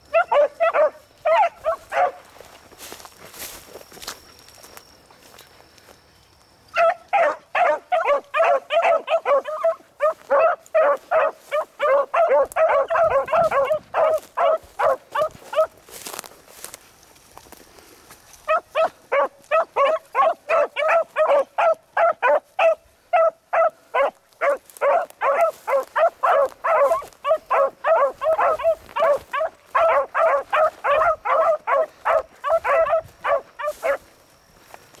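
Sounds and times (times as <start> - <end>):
beagles barking rapidly: 0.0 - 2.6, 6.7 - 15.9, 18.4 - 34.2.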